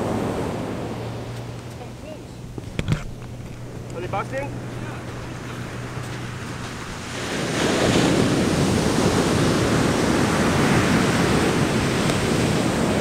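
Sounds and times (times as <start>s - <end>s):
ocean surf breaking: 0.0s - 13.0s
wind on microphone: 2.4s - 13.0s.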